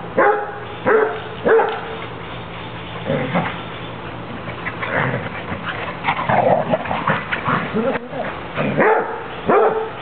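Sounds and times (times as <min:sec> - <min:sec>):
dog barking: 0:00.2 - 0:01.9, 0:08.8 - 0:10.0.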